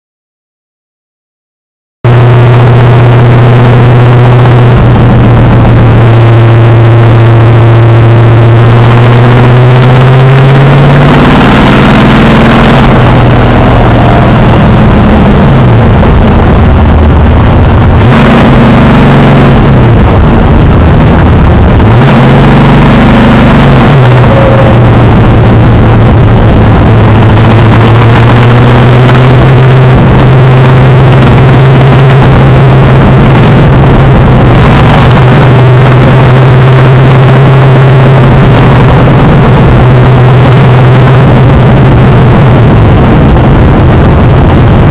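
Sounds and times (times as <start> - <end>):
racing engine revving: 2.1 - 44.9.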